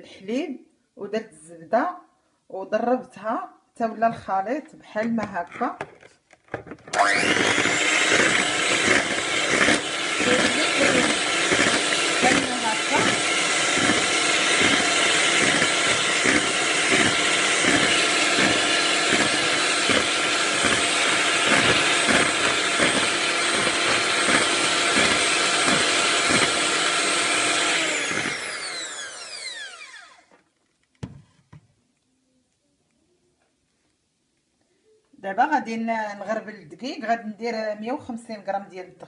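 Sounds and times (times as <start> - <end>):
electric hand mixer whining: 6.9 - 30.3.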